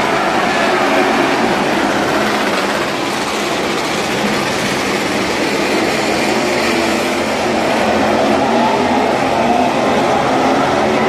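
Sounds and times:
racing motorcycle engines: 0:00.0 - 0:11.0.

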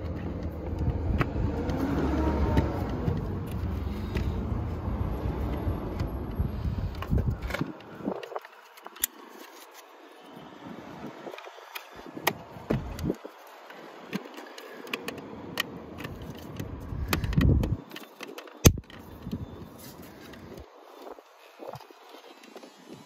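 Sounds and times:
plastic clicks: 0:11.3 - 0:20.7.

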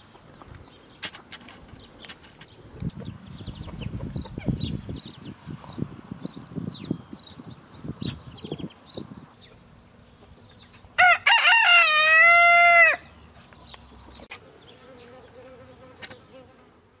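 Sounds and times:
rooster crowing: 0:11.0 - 0:13.1
faint insect buzz: 0:14.3 - 0:17.0.

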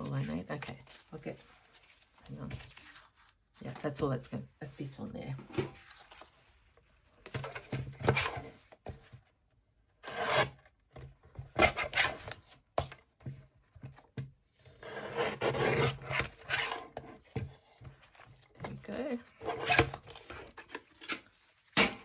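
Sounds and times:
paper rustling: 0:00.0 - 0:03.9, 0:05.7 - 0:09.3.

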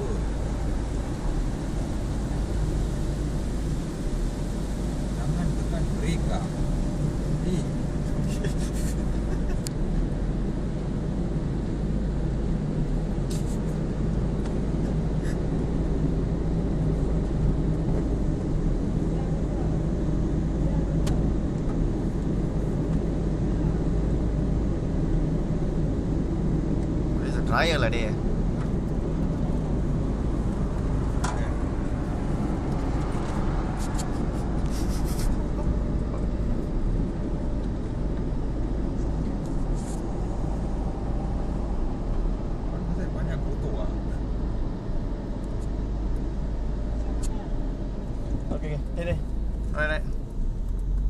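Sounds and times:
car engine running: 0:00.0 - 0:51.0.

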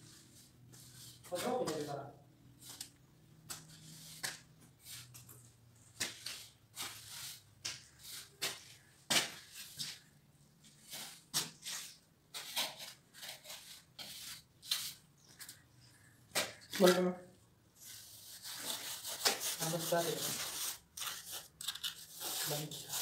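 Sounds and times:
gritty scraping on concrete: 0:03.5 - 0:10.0, 0:10.7 - 0:15.6, 0:16.3 - 0:17.2, 0:17.8 - 0:23.0.

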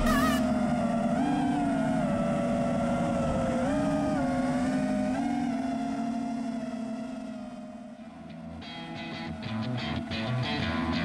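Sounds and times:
quadcopter motors whining: 0:00.0 - 0:06.0.

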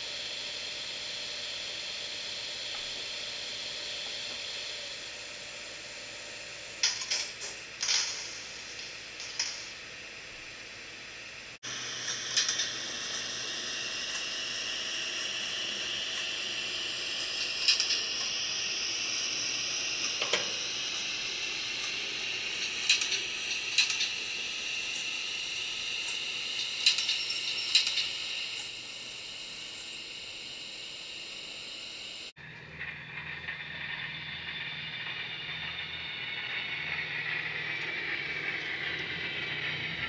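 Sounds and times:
faint whine falling in pitch: 0:08.0 - 0:40.0
steady hiss: 0:11.5 - 0:32.3
sharp metallic clicks: 0:12.0 - 0:13.3, 0:17.4 - 0:18.4, 0:26.0 - 0:28.7.

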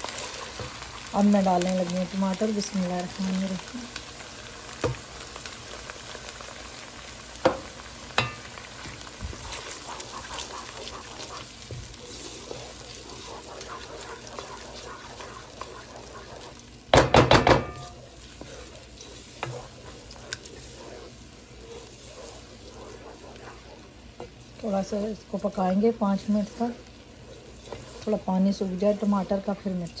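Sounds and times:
paste sizzling in hot oil: 0:00.0 - 0:30.0
wooden spoon knocking on pan: 0:07.4 - 0:07.6, 0:16.9 - 0:17.9.

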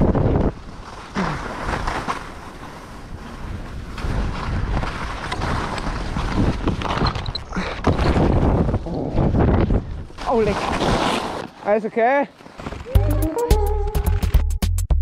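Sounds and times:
skis scraping on packed snow: 0:00.0 - 0:07.0, 0:09.6 - 0:13.0
wind rushing over microphone: 0:00.0 - 0:11.4.

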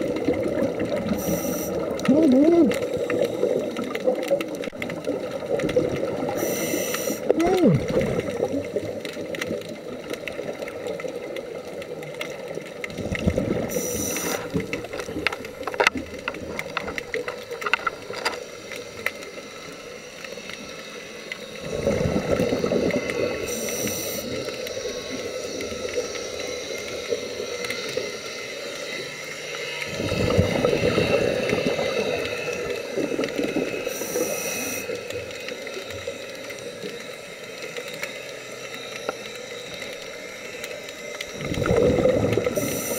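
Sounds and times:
exhaled bubbles gurgling underwater: 0:00.0 - 0:37.0, 0:39.7 - 0:42.9
regulator hissing: 0:06.3 - 0:07.8, 0:13.6 - 0:15.2, 0:22.6 - 0:29.9, 0:42.4 - 0:42.9.

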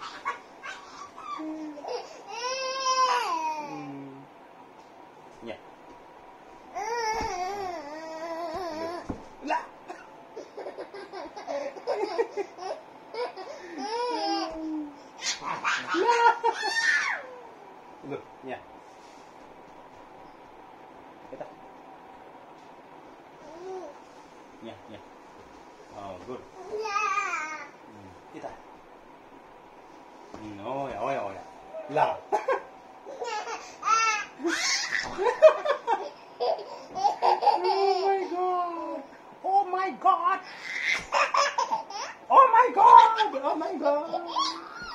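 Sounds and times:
baby laughing: 0:09.9 - 0:14.6, 0:15.2 - 0:17.4, 0:33.1 - 0:38.3, 0:40.6 - 0:42.2.

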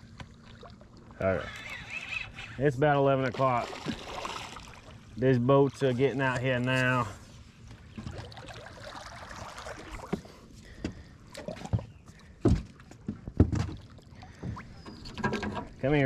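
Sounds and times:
water trickling: 0:07.8 - 0:10.2.

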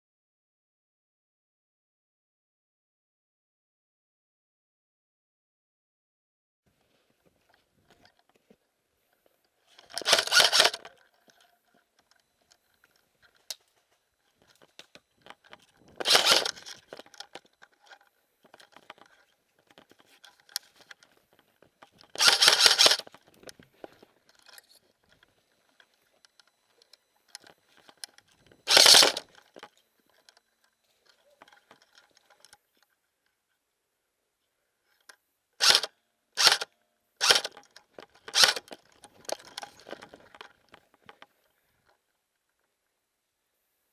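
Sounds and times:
airsoft rifle firing bursts: 0:09.9 - 0:10.9, 0:16.0 - 0:16.7, 0:22.2 - 0:23.1, 0:28.7 - 0:29.3, 0:35.6 - 0:37.6, 0:38.3 - 0:38.7.

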